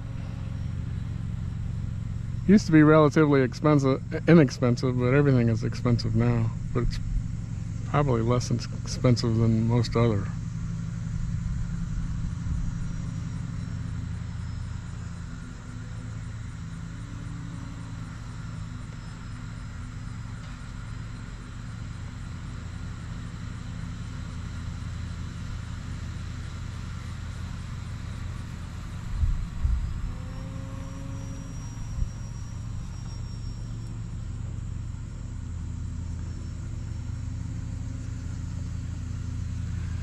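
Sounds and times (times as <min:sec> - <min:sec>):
faint electric motor whine: 0:00.0 - 0:40.0
wind rumble on microphone: 0:29.1 - 0:30.4.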